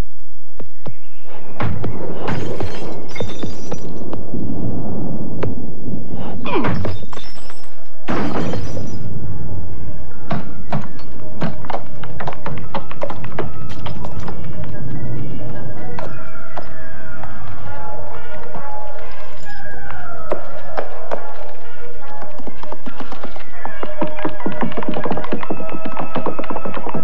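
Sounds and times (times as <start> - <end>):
film music: 0.7 - 27.0
thuds and crashes: 6.5 - 9.0.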